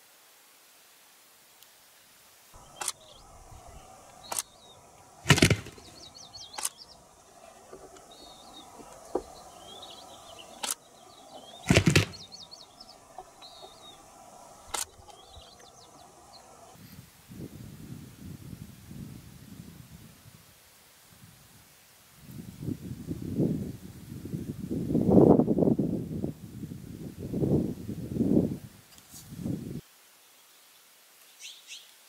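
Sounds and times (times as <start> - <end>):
turkey feather and wing rattles: 2.6 - 15.2
small songbirds chirping: 2.6 - 16.8, 30.3 - 32.0.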